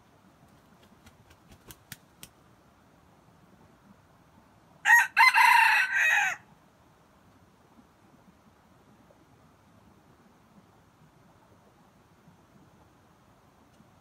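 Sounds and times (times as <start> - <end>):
rooster crowing: 4.8 - 6.5.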